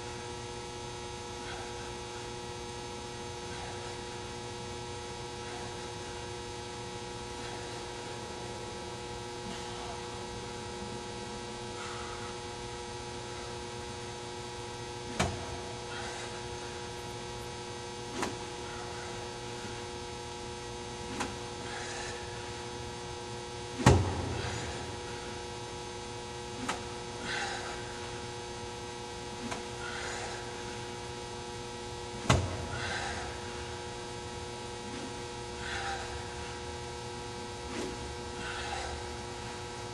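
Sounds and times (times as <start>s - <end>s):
electrical mains hum: 0.0s - 39.9s
golf club swishes: 37.7s - 38.1s.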